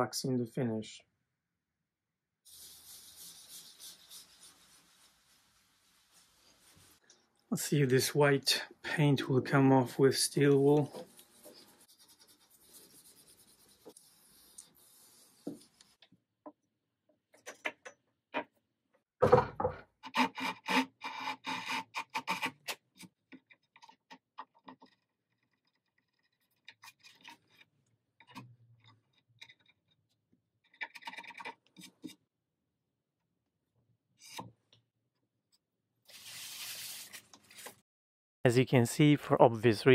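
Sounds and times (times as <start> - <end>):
steel wool rubbing on wood: 2.5 - 7.0, 10.8 - 16.0.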